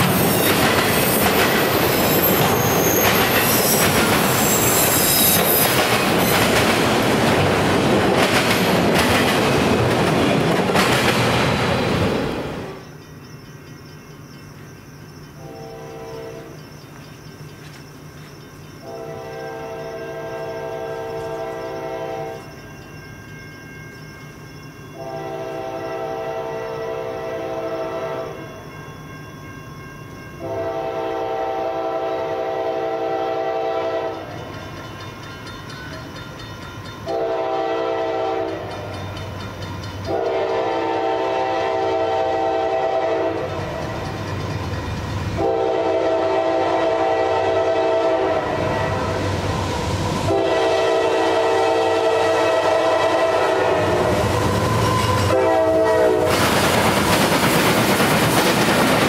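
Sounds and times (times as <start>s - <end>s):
low rumble of locomotive engine: 5.8s - 59.0s
locomotive air horn blasts: 15.4s - 16.5s, 18.8s - 22.5s, 24.9s - 28.4s, 30.4s - 34.3s, 37.1s - 38.7s, 40.1s - 43.6s, 45.4s - 49.2s, 50.3s - 56.4s.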